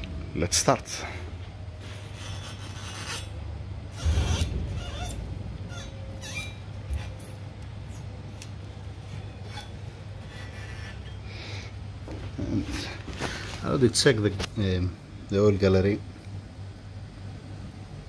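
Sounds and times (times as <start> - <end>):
low steady hum: 0.0 - 18.0
hand rubbing and scraping metal: 1.4 - 13.8.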